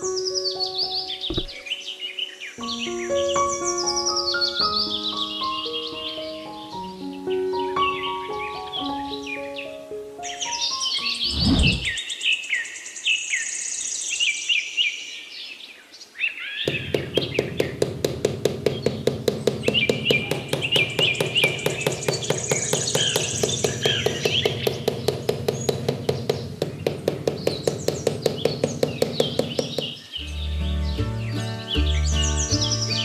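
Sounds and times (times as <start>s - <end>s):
songbird chirping: 0.0s - 33.0s
hammer tapping wooden stick: 16.7s - 29.9s.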